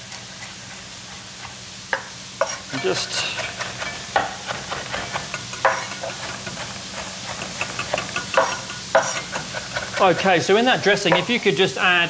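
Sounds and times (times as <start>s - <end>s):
food sizzling in pans: 0.0s - 12.0s
knife chopping on wooden board: 3.4s - 11.4s.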